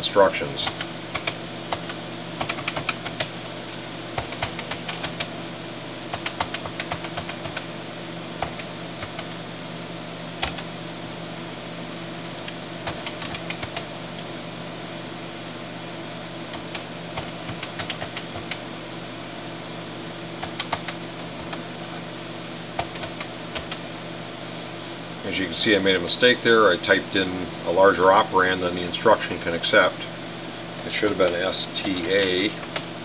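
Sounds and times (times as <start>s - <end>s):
steady low hum: 0.0s - 33.0s
keyboard keys clicking: 0.6s - 3.3s, 4.2s - 5.3s, 6.1s - 7.6s, 10.4s - 10.7s, 12.8s - 13.9s, 16.5s - 18.6s, 20.4s - 21.6s, 22.8s - 23.8s.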